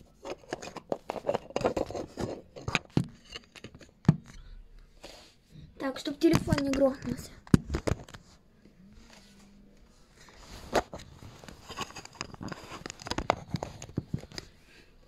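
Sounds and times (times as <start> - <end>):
clicks and rustles: 0.0 - 4.5, 6.2 - 8.4, 10.2 - 14.6.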